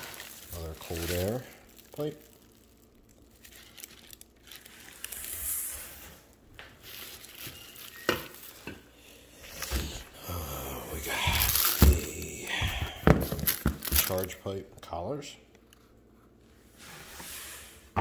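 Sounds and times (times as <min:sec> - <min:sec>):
plastic wrap and paper crinkling: 0:00.0 - 0:10.1, 0:10.9 - 0:14.5.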